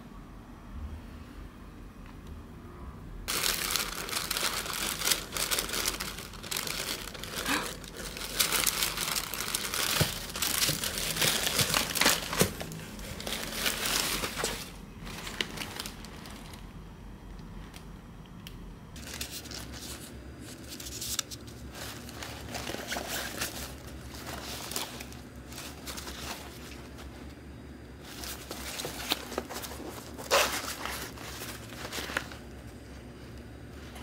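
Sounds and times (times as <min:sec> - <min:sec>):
packaging crinkling: 0:03.3 - 0:16.8, 0:19.0 - 0:27.4, 0:28.0 - 0:32.8.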